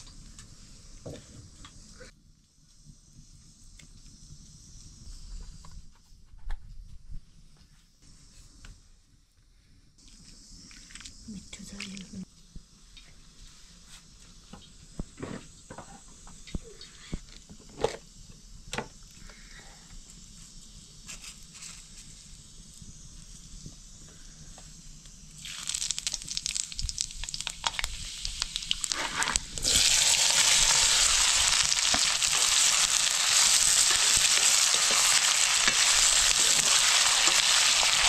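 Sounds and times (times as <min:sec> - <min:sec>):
food frying in hot oil: 0:17.6 - 0:38.0.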